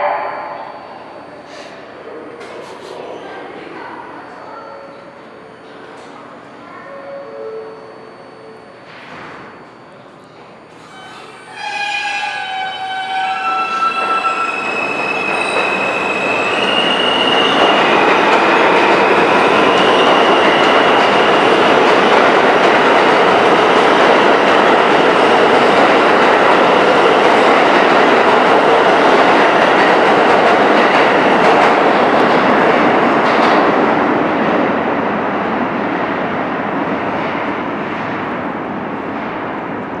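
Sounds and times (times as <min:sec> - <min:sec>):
subway train motors whining: 0:00.0 - 0:40.0
steel wheels rumbling on rail: 0:10.4 - 0:40.0.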